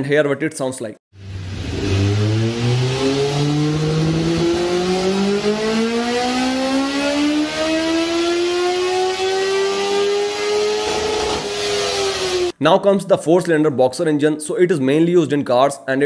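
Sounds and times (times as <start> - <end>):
motorcycle engine accelerating: 1.1 - 12.5.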